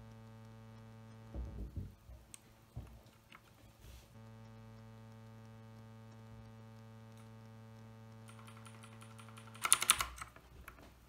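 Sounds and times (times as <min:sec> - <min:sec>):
electrical hum: 0:00.0 - 0:11.0
mechanical keyboard clicking: 0:08.2 - 0:10.8.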